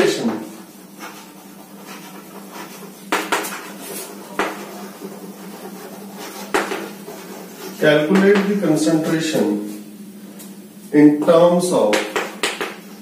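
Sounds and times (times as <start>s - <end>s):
steady low hum: 0.0s - 13.0s
chalk tapping on blackboard: 0.2s - 8.5s, 11.9s - 12.9s.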